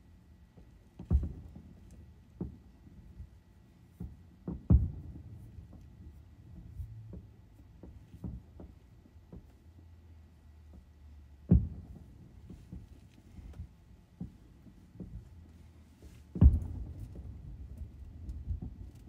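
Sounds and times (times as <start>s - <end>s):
faint fireworks pops: 0.6s - 9.6s, 11.4s - 19.0s
fireworks booming: 4.0s - 5.8s, 11.5s - 12.8s, 16.3s - 19.0s.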